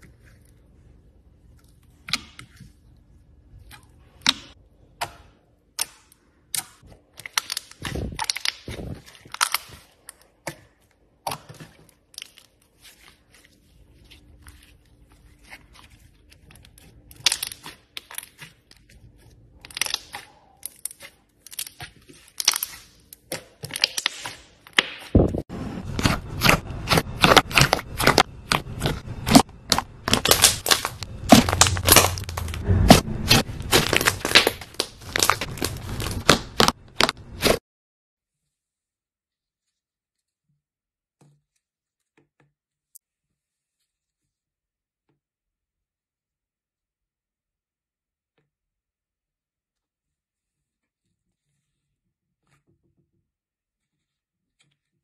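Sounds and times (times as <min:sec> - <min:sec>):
slime squishing and popping: 0:04.1 - 0:13.0, 0:16.4 - 0:25.4, 0:26.0 - 0:37.6.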